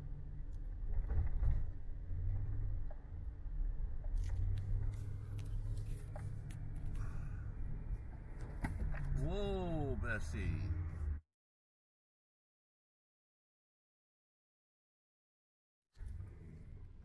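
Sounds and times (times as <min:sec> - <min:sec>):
road and engine rumble: 0:00.0 - 0:11.2, 0:16.0 - 0:17.0.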